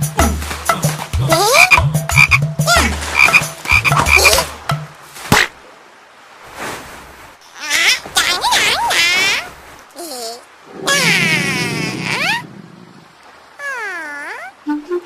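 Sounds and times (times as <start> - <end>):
cartoon frog croaking: 1.3 - 4.5, 10.8 - 12.4.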